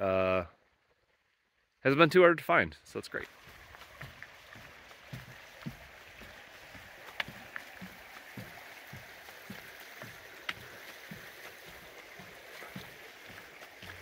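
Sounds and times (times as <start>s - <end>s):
faint creek rushing: 1.8s - 14.0s
footsteps on wooden bridge: 3.2s - 14.0s.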